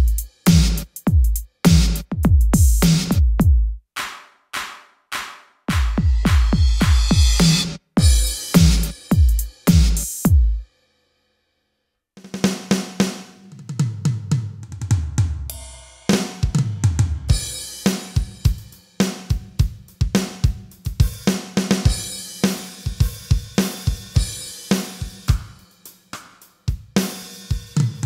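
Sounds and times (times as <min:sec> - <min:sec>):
electronic drum samples: 0:00.0 - 0:10.6.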